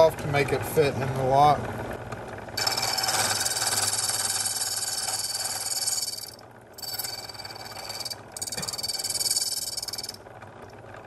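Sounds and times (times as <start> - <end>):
motor hum: 0.0 - 11.0
key cutter high-pitched grinding: 2.6 - 10.2.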